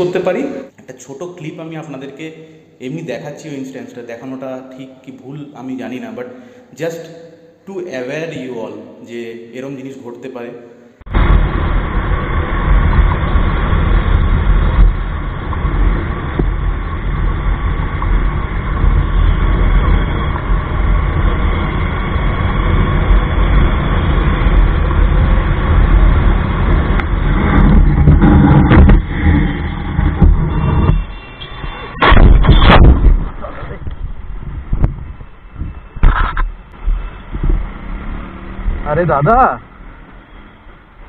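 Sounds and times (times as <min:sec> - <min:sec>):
wind rush on microphone: 0:11.1 - 0:31.1, 0:32.1 - 0:37.8
motorcycle engine: 0:11.1 - 0:41.0
road noise: 0:11.1 - 0:41.0.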